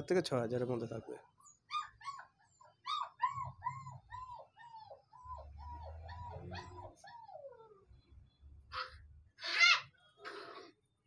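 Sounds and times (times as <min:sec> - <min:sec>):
puppy whimpering: 0:01.0 - 0:07.9.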